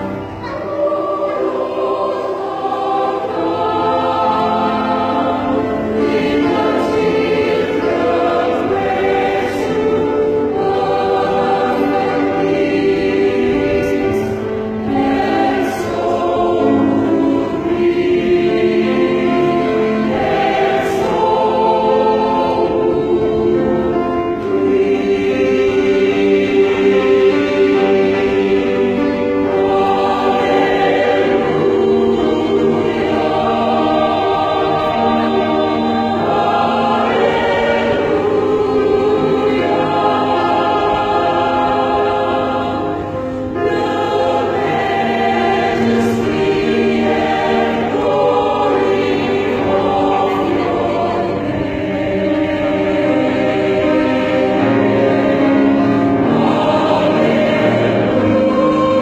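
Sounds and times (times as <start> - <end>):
church choir singing: 0.0 - 59.0.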